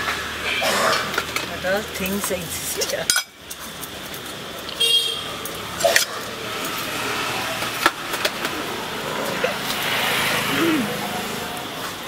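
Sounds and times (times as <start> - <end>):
road traffic: 0.0 - 12.0
vehicle horn toot: 4.8 - 5.3.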